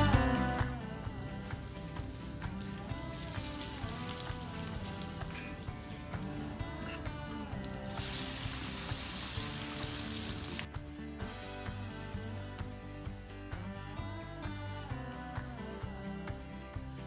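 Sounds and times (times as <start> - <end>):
hot oil sizzling and crackling: 1.0 - 10.7.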